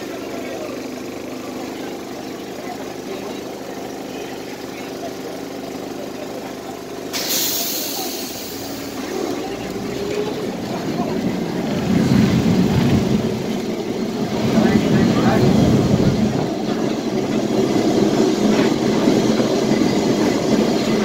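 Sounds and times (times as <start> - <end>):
tram humming: 0.0 - 21.0
tram rumbling: 0.0 - 21.0
air brakes hissing: 7.0 - 10.0.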